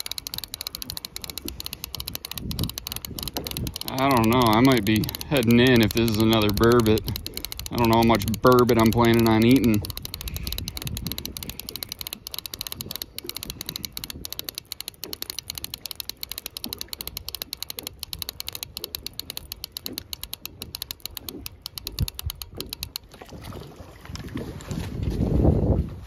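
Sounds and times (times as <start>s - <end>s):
fishing reel ratchet clicks: 0.0s - 23.1s.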